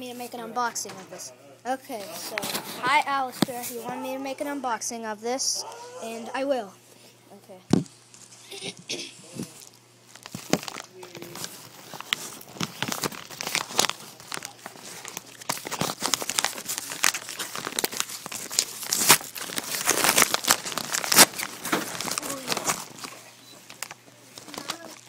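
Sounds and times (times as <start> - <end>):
plastic packaging crinkling: 9.3 - 25.0.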